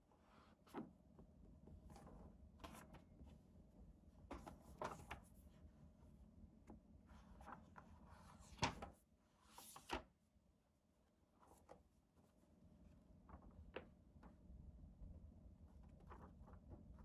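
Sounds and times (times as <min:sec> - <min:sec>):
paper rustling: 0:15.8 - 0:17.0.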